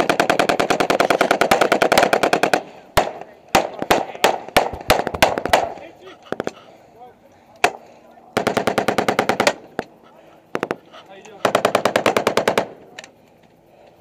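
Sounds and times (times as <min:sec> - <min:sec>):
automatic gunfire: 0:00.0 - 0:05.7, 0:08.4 - 0:09.6, 0:11.4 - 0:12.8.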